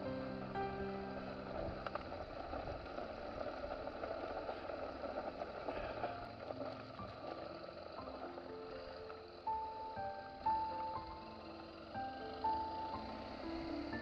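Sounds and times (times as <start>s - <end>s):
background music: 0.0s - 3.0s, 6.1s - 14.0s
motorcycle engine: 0.0s - 14.0s
road noise: 0.0s - 14.0s.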